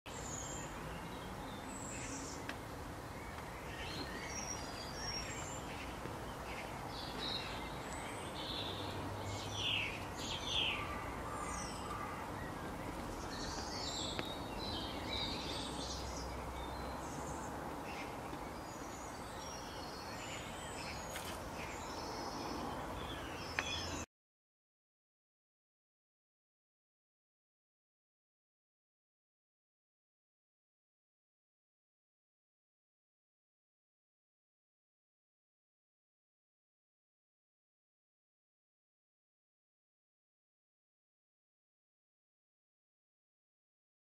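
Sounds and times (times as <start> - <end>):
birds chirping and calling: 0.1 - 24.0.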